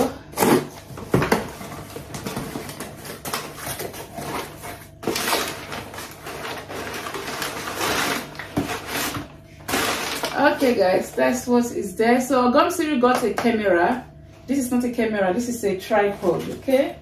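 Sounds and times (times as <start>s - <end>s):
packing paper rustling and crinkling: 0.4s - 10.8s.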